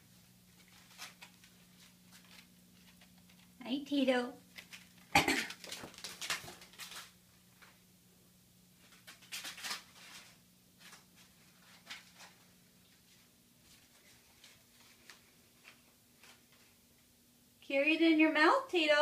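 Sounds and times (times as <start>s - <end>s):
steady low hum: 0.0s - 9.3s
paper ball crinkling and tapping: 0.5s - 3.6s, 4.4s - 7.8s.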